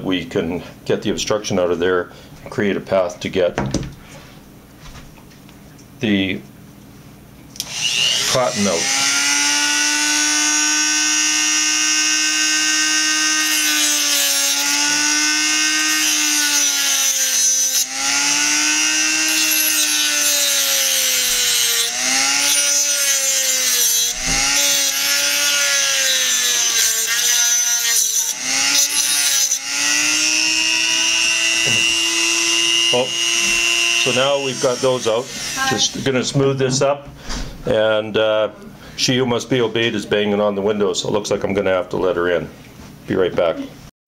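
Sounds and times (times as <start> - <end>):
rotary tool cutting metal: 7.6 - 36.1.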